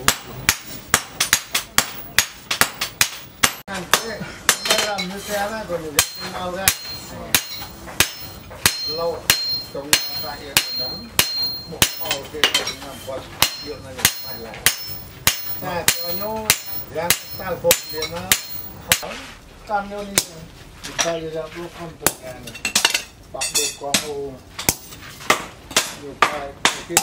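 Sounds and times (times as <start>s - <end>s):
hammer striking hot steel on anvil: 0.0s - 5.3s, 5.9s - 19.1s.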